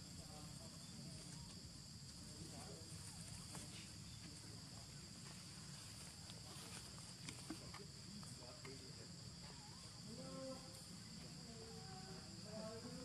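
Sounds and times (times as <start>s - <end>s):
soft ticks and rustles: 1.1s - 8.9s.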